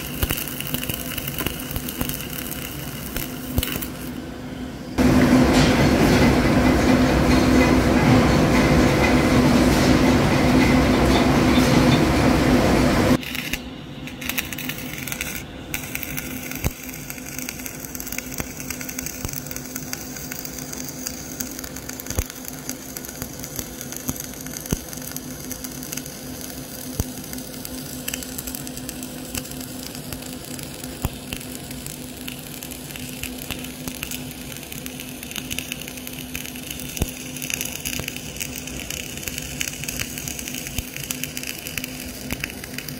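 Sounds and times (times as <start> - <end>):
welding arc crackling and popping: 0.0 - 4.3, 13.1 - 42.9.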